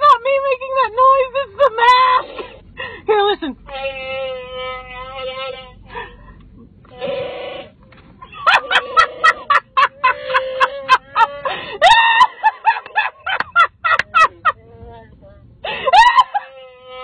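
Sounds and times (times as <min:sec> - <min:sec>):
woman laughing breathlessly: 0:05.9 - 0:06.4, 0:08.2 - 0:14.6, 0:15.6 - 0:16.6.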